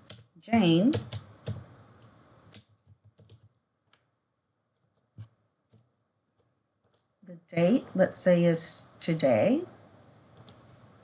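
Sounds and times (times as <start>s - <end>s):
computer keyboard typing: 0.0s - 3.6s, 4.8s - 7.1s.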